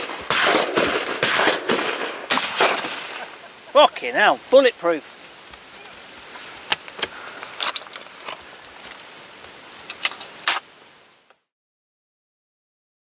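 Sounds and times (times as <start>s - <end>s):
faint outdoor hiss: 0.0s - 11.5s.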